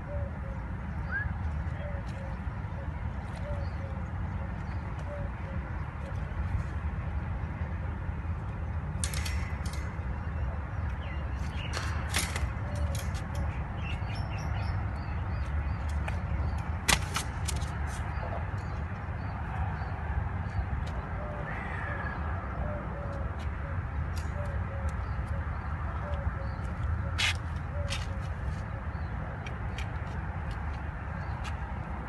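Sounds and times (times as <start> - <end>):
faint bird calls: 20.5 - 29.1.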